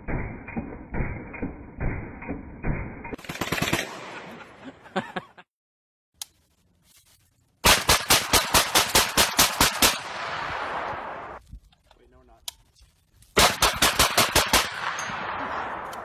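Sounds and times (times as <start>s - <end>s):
rapid loud gunshots: 2.6s - 4.2s, 7.6s - 11.4s, 13.4s - 15.8s
muffled pistol shots: 7.6s - 11.4s, 13.4s - 16.0s.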